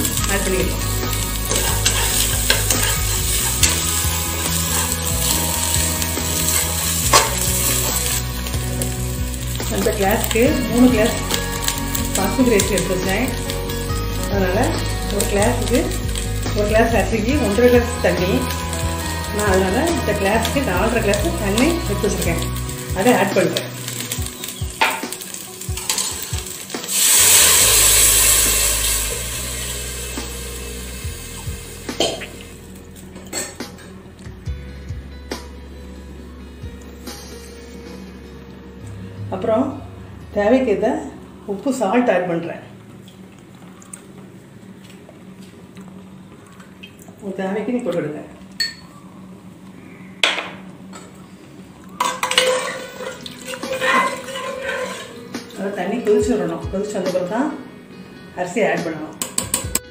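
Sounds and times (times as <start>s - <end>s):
loud sizzling hiss: 0.0s - 33.0s
ladle scraping and clinking pot: 1.2s - 5.4s, 6.5s - 8.2s, 25.8s - 27.4s, 52.0s - 55.2s.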